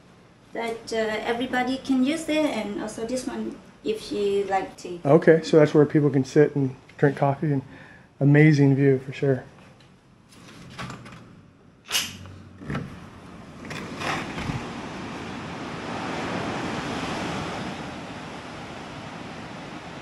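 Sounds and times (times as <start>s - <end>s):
ocean surf: 12.9s - 20.0s
wind on microphone: 13.6s - 20.0s.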